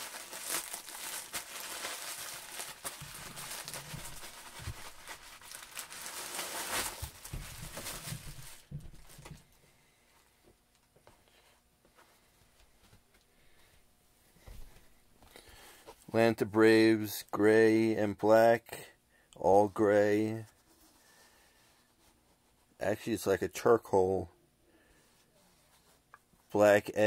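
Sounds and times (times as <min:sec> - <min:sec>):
plastic wrapping crinkling: 0:00.0 - 0:09.4
faint handling sounds: 0:00.0 - 0:16.2, 0:19.4 - 0:27.0.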